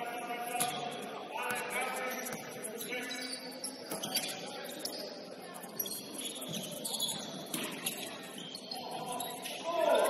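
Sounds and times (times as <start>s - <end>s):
murmur of voices: 0.0s - 10.0s
shoes squeaking on hardwood court: 2.1s - 9.6s.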